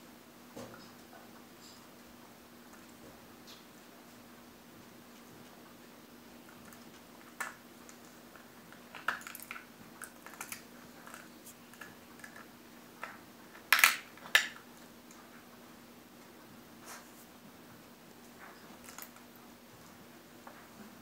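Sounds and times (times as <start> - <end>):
dog cracking walnut shell: 6.5 - 14.8, 18.8 - 19.3.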